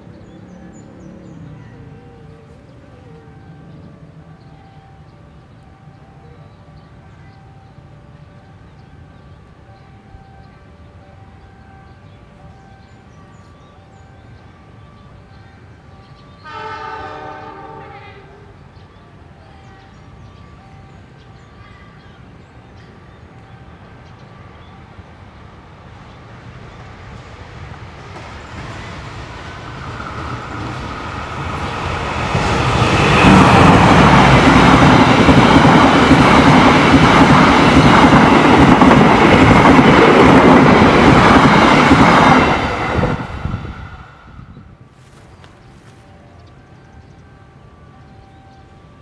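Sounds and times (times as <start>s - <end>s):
diesel locomotive engine: 0.0s - 49.0s
train wheels on rails: 25.9s - 47.2s.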